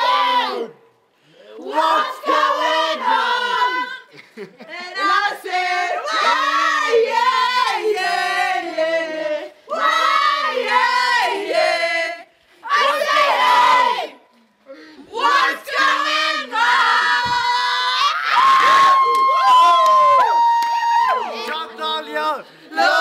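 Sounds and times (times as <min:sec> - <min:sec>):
group of people singing: 0:00.0 - 0:00.8, 0:01.4 - 0:14.2, 0:15.1 - 0:17.9, 0:22.0 - 0:23.0.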